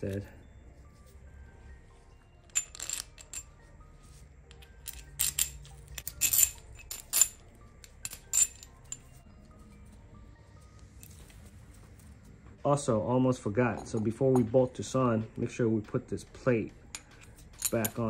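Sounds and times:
bolts and washers clinking on metal: 0:02.4 - 0:03.5, 0:04.5 - 0:09.2, 0:16.9 - 0:18.0.

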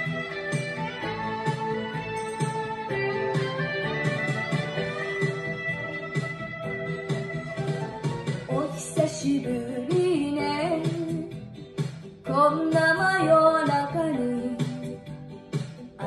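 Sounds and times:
karaoke backing track: 0:00.0 - 0:16.0
girl singing: 0:08.5 - 0:11.3, 0:12.3 - 0:14.8.

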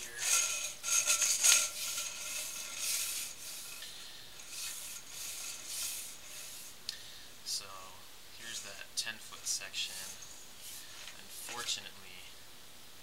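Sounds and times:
cable scraping in drain pipe: 0:00.0 - 0:06.8.

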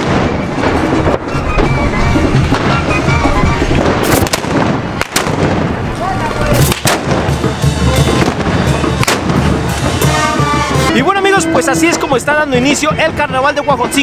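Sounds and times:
musket blasts: 0:03.8 - 0:05.9, 0:06.5 - 0:10.7
brass band playing: 0:06.5 - 0:14.0.

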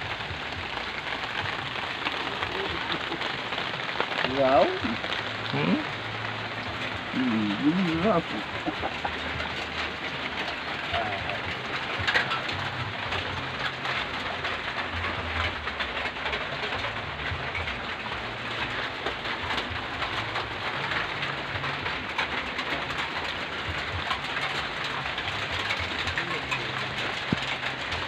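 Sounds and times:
close raindrops: 0:00.0 - 0:28.0
steady rain falling: 0:00.0 - 0:28.0.

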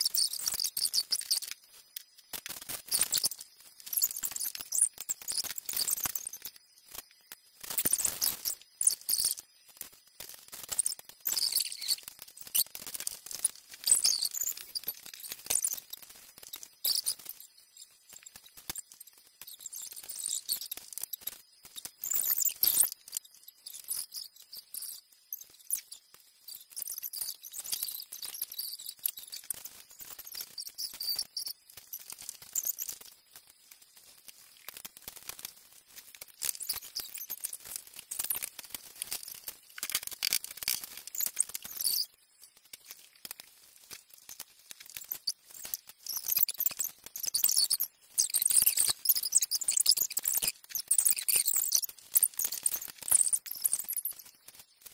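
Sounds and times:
plastic bricks clicking and clattering: 0:34.2 - 0:47.7.

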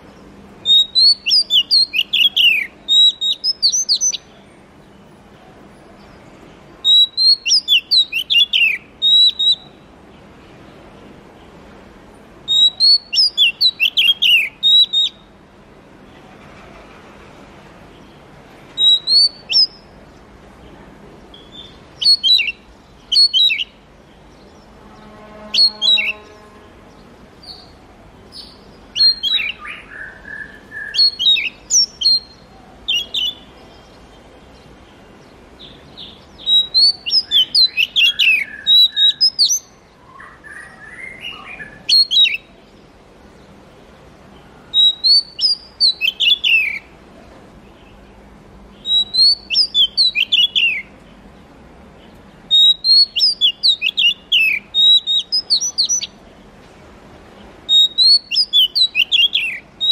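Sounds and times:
bird whistled song: 0:00.6 - 0:04.4, 0:06.8 - 0:09.9, 0:12.5 - 0:15.4, 0:18.8 - 0:20.0, 0:21.3 - 0:23.8, 0:24.4 - 0:26.6, 0:27.4 - 0:34.0, 0:35.6 - 0:42.6, 0:44.7 - 0:46.9, 0:48.8 - 0:51.0, 0:52.5 - 0:56.2, 0:57.7 - 0:59.9
harsh bird notes: 0:24.5 - 0:33.5.

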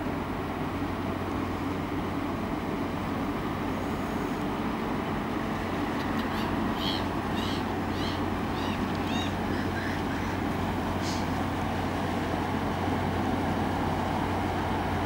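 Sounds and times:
ship engines droning: 0:00.0 - 0:15.0
bird calls: 0:05.9 - 0:11.4.

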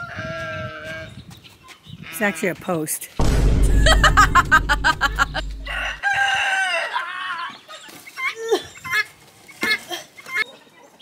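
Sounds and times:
low steady rumble: 0:03.2 - 0:06.0
rooster crowing: 0:05.6 - 0:07.4.

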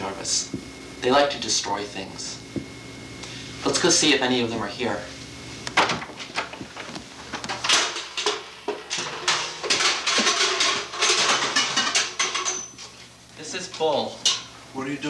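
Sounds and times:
metal chair crashing and banging: 0:07.3 - 0:12.8.

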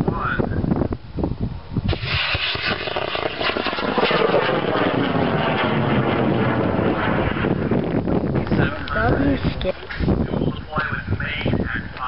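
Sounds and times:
model rocket motor burning: 0:01.9 - 0:10.1.

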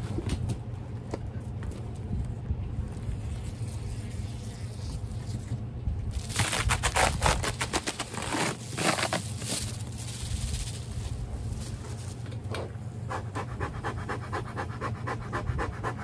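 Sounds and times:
foil bubble-wrap crinkling: 0:06.1 - 0:12.2.

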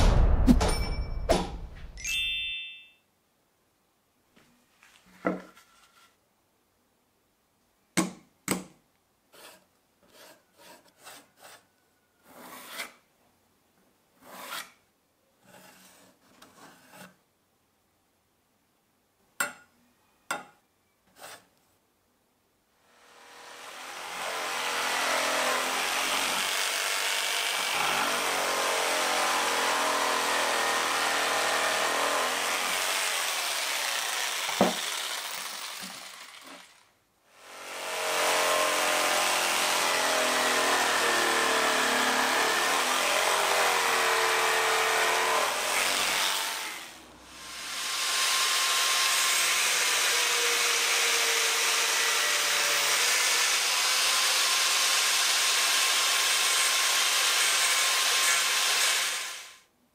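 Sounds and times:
electric jigsaw cutting wood: 0:22.9 - 0:59.6.

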